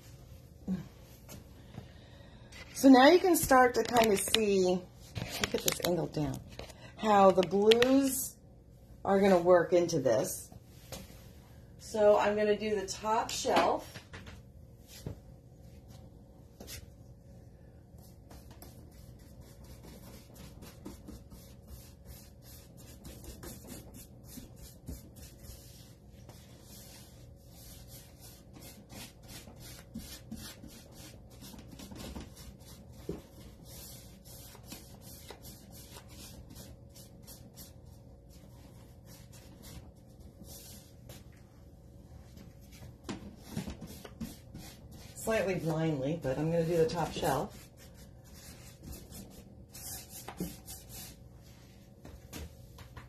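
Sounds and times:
paintbrush strokes on wood: 18.3s - 41.3s.

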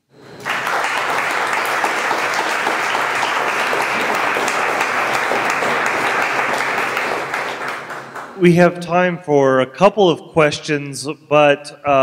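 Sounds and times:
audience applauding: 0.3s - 8.6s.

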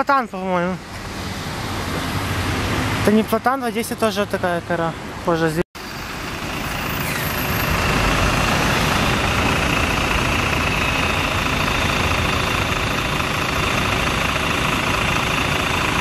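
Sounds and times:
bus engine idling: 5.8s - 16.0s.

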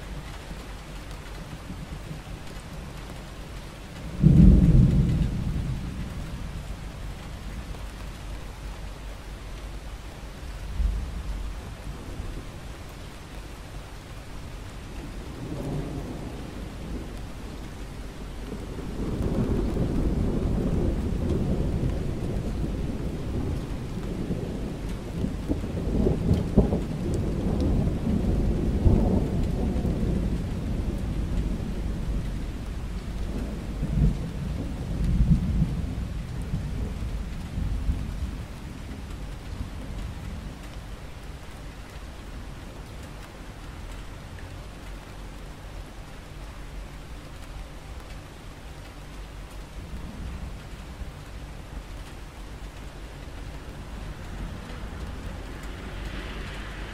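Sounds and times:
steady rain falling: 0.0s - 56.9s
thunder rolling: 4.1s - 7.2s, 15.0s - 38.6s, 53.2s - 56.9s.

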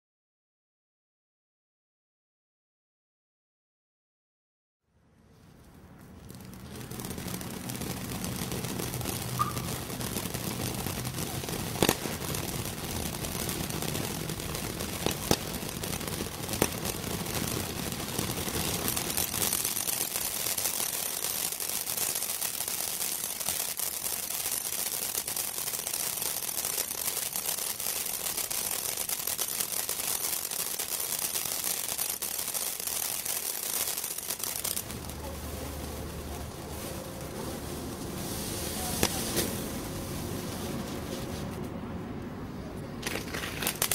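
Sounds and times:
firework fountain hissing: 6.0s - 41.4s, 43.0s - 43.9s
sharp firework pops: 6.2s - 35.4s, 38.8s - 39.6s, 43.0s - 43.9s.

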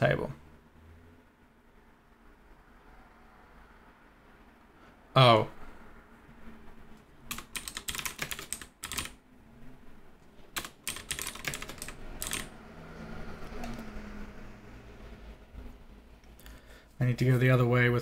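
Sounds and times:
typing on keyboard: 7.3s - 9.2s, 10.6s - 12.5s.

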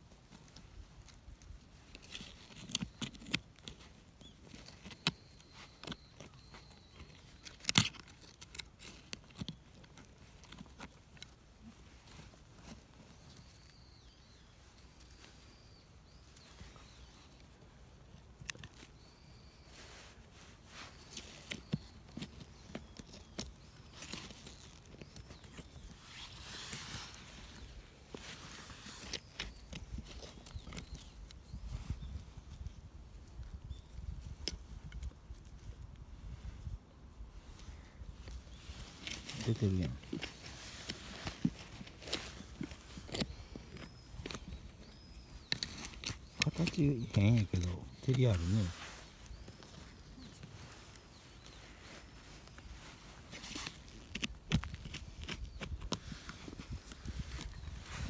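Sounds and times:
metal tool scraping soil: 38.7s - 58.0s.

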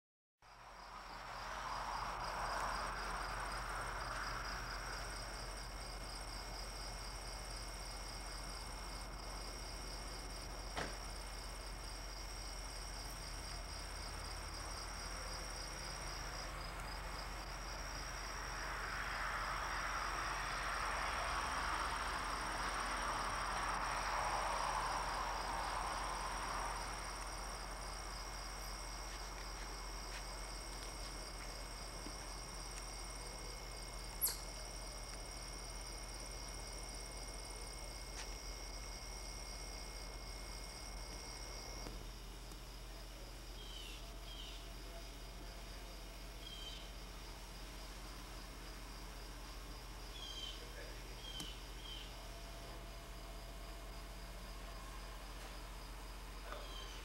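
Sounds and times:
insects trilling: 0.5s - 57.0s.

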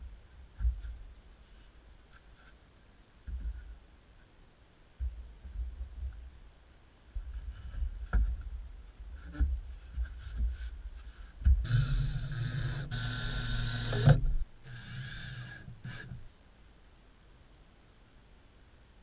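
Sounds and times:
wooden knocks and handling thumps: 0.5s - 1.1s, 3.2s - 3.8s, 5.0s - 6.3s, 7.1s - 11.7s
cordless drill running: 11.7s - 16.1s.

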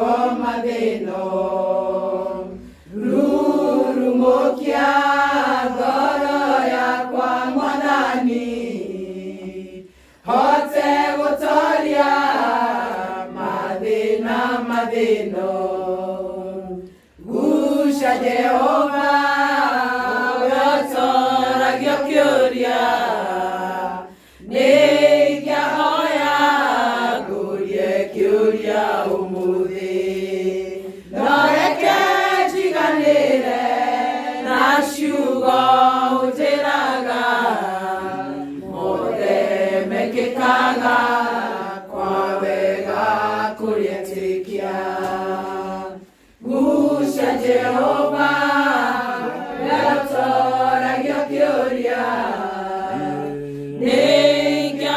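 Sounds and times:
women singing a hymn: 0.0s - 54.9s.

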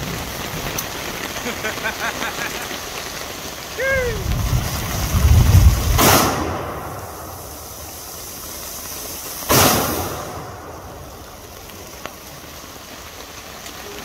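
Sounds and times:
loud low rumbling: 3.8s - 7.4s
rifle shots: 5.9s - 6.9s, 9.5s - 10.5s.

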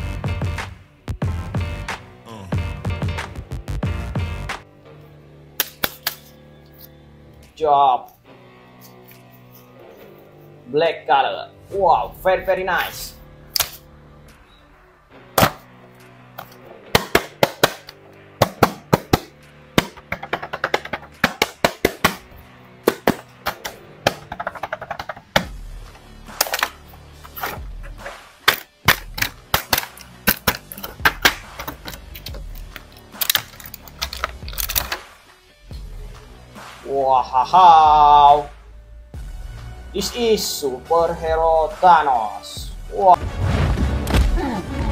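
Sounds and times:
background music: 0.0s - 44.9s
plastic packaging crackling: 29.0s - 35.0s.

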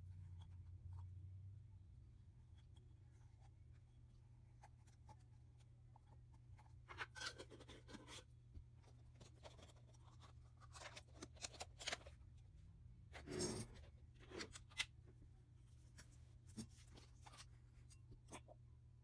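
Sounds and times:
plastic spoon scraping bowl: 13.2s - 14.5s.

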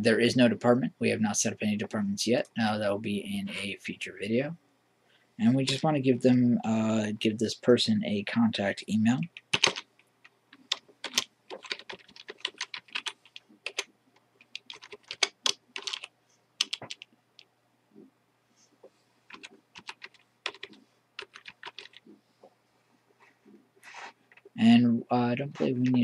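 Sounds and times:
computer keyboard typing: 9.4s - 17.1s, 19.3s - 22.1s.

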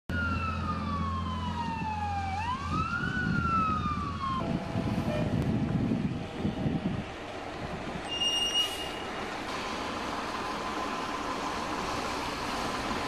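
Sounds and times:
emergency siren wailing: 0.1s - 7.0s
traffic and engines rumbling: 0.1s - 13.0s.

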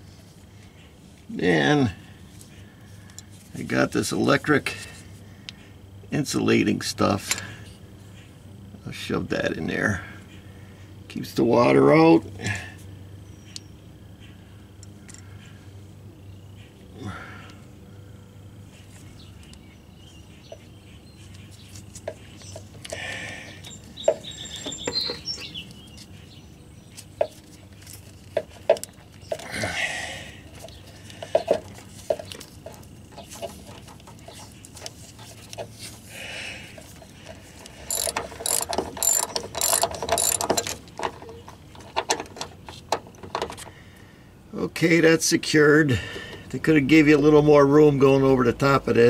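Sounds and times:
clicks knocks and rustles: 30.6s - 36.0s, 36.8s - 43.8s
ratchet wrench clicking: 37.6s - 40.8s.

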